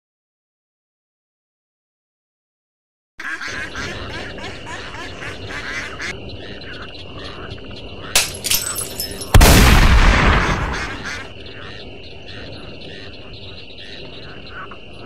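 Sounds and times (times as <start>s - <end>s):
ducks quacking: 3.2s - 8.2s, 10.3s - 15.0s
frogs croaking: 3.2s - 15.0s
shotgun blast: 9.3s - 11.1s.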